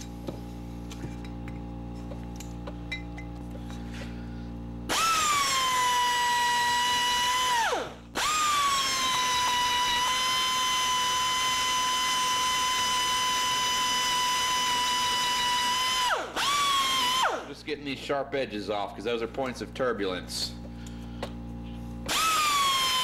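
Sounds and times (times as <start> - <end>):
die grinder whining: 4.9 - 17.6, 22.0 - 23.0.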